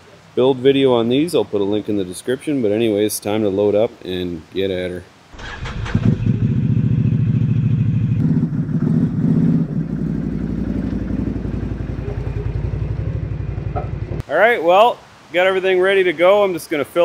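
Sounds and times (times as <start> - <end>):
atv engine running: 5.6 - 14.2.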